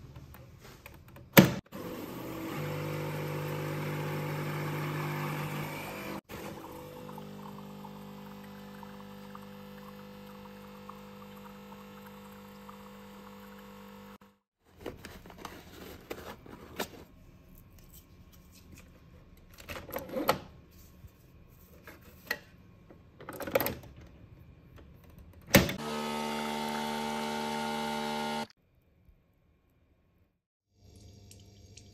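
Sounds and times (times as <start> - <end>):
coffee machine pump humming: 1.8 - 14.4, 25.8 - 28.5.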